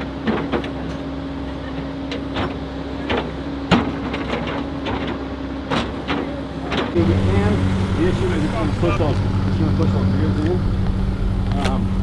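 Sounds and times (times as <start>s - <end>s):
excavator diesel engine humming: 0.0s - 12.0s
excavator bucket clanking: 2.1s - 7.0s.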